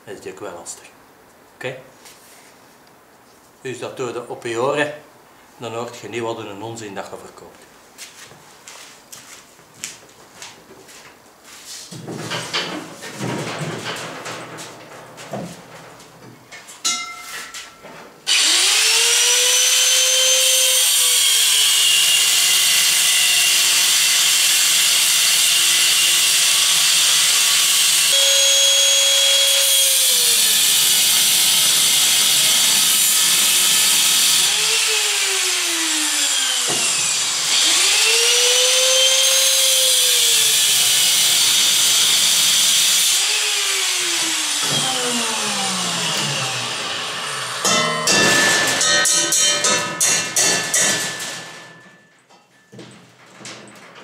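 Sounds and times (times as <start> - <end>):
angle grinder cutting steel: 18.3 - 52.0.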